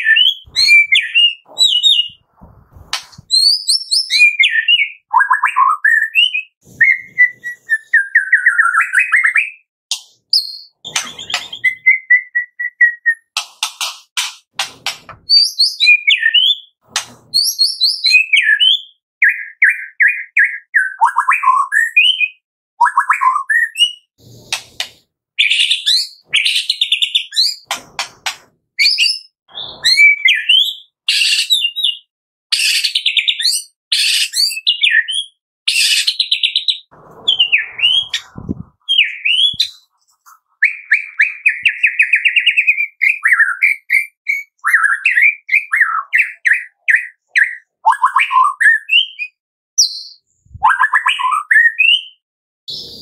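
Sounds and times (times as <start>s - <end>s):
songbird singing with trills: 0.0s - 2.2s.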